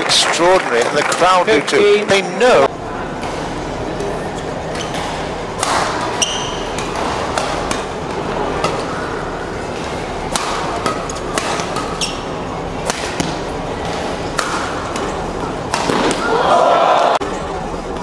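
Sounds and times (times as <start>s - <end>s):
murmur of spectators: 0.0s - 18.0s
rackets striking shuttlecock: 3.2s - 16.4s.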